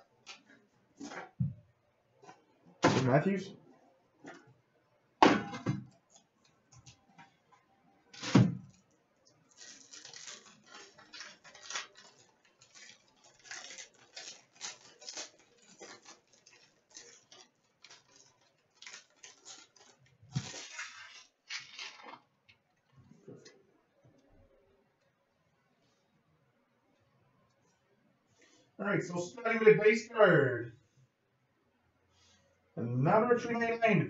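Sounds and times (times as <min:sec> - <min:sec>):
wrapper crinkling: 0:08.2 - 0:22.3.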